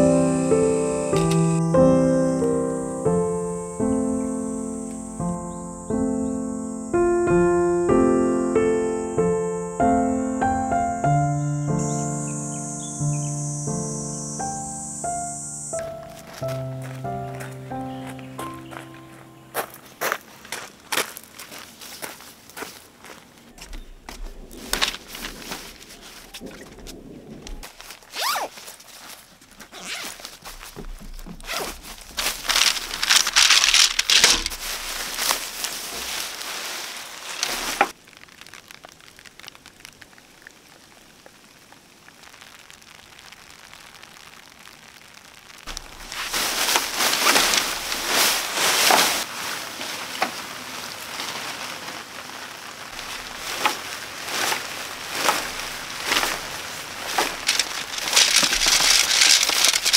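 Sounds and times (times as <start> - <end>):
fabric and gear rustling: 23.8 - 38.0, 45.7 - 59.9.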